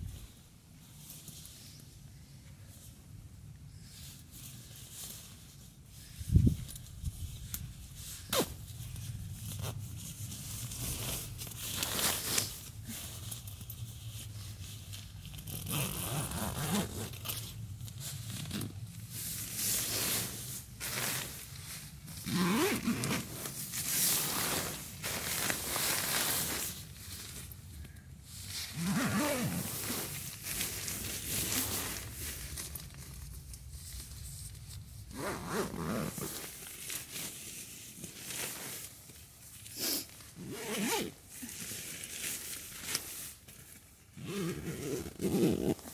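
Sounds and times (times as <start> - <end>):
nylon fabric rustling: 8.2 - 27.6, 28.3 - 45.9
sleeping bag zipper: 15.5 - 17.3, 22.3 - 23.5, 28.8 - 30.1, 35.1 - 36.5, 39.8 - 41.2, 44.2 - 45.9.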